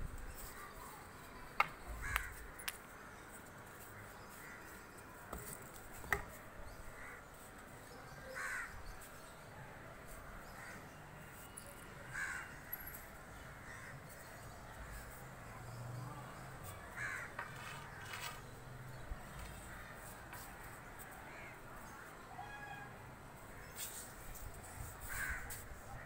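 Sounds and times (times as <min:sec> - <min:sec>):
crows cawing: 0:02.0 - 0:02.4, 0:07.0 - 0:07.2, 0:08.3 - 0:08.8, 0:12.1 - 0:12.9, 0:13.5 - 0:14.0, 0:17.0 - 0:17.7, 0:25.0 - 0:25.6.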